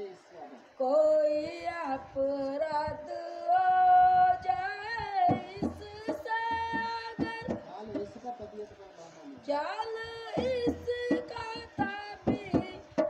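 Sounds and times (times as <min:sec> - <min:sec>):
soft percussive beats: 0:04.1 - 0:08.6, 0:09.4 - 0:13.0.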